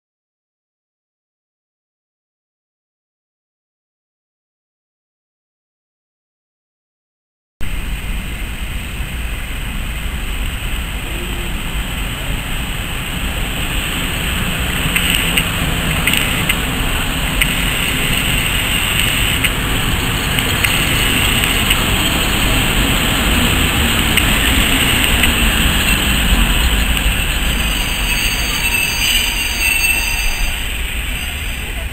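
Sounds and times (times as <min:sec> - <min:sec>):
train rumbling on rails: 0:07.6 - 0:31.9.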